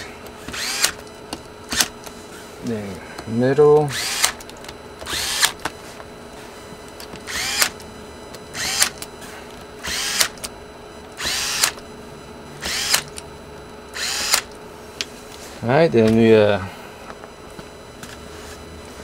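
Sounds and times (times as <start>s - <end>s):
electric screwdriver whirring: 0.0s - 2.4s, 3.8s - 5.8s, 6.9s - 11.9s, 12.6s - 13.2s, 13.9s - 14.6s.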